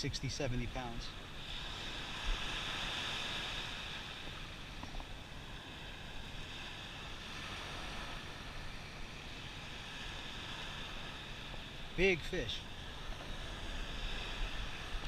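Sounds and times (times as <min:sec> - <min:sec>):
surf washing on sand: 0:00.0 - 0:15.0
wind on microphone: 0:12.6 - 0:15.0.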